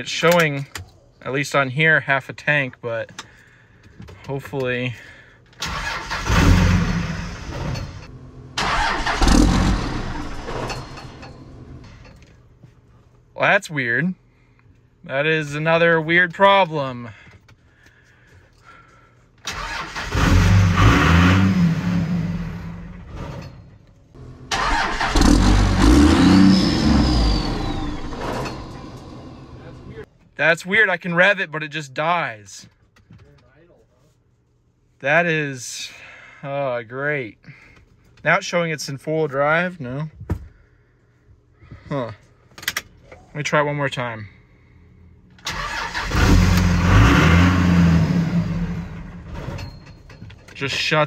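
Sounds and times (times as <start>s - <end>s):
diesel engine starting and dying: 5.6s - 11.9s, 19.4s - 23.5s, 24.2s - 30.1s, 45.4s - 50.2s
high turbo whine: 24.2s - 30.0s.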